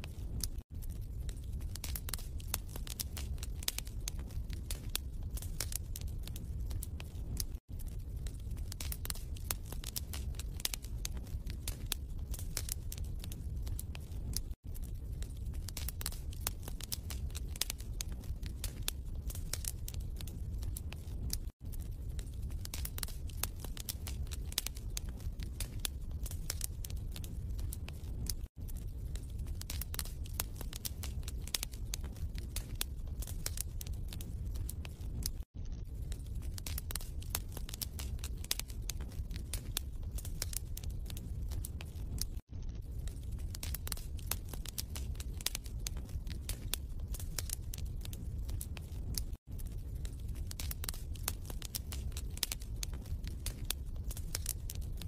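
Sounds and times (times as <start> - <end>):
wood fire crackling: 0.0 - 55.0.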